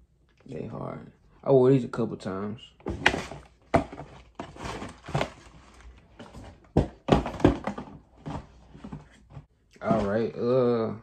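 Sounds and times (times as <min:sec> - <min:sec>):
cardboard boxes knocking down: 0:02.8 - 0:05.6, 0:06.2 - 0:09.1
cardboard rustling: 0:02.8 - 0:10.2.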